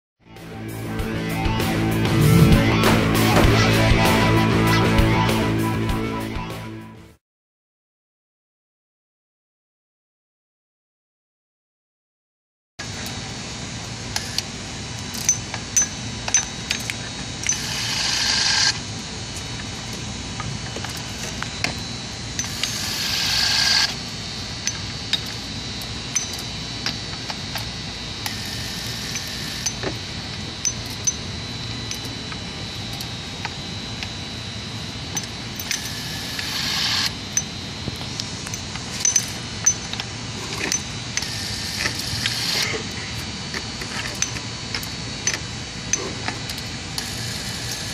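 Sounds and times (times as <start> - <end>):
electric wrench motor whine: 0.4 - 5.9, 12.8 - 47.9.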